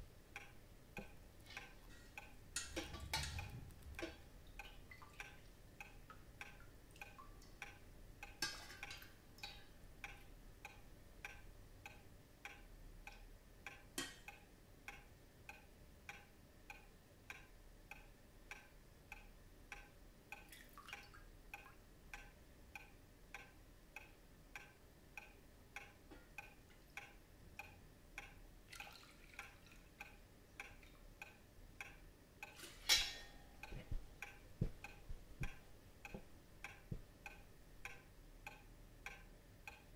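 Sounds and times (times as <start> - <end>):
quiet ticking: 0.0 - 28.7, 29.3 - 39.9
metal ladle clinking in pot: 1.9 - 3.5, 8.4 - 9.1, 32.6 - 33.6.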